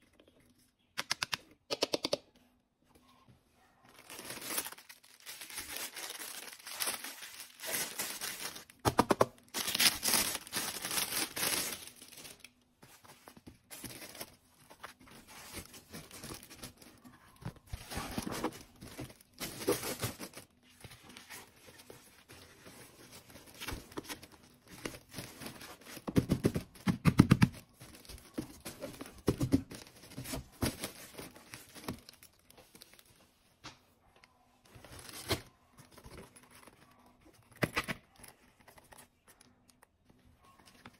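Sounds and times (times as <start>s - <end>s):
plastic wrapping crinkling: 3.9s - 8.8s, 9.4s - 26.2s.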